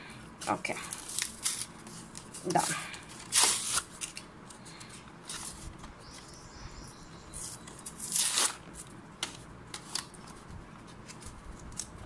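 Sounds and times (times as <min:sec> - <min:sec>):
plastic packaging crinkling: 0:00.8 - 0:06.3.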